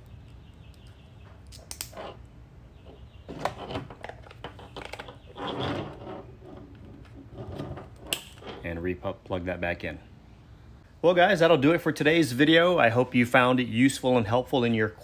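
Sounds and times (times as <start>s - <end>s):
plastic connector clicks and scrapes: 3.4s - 5.4s.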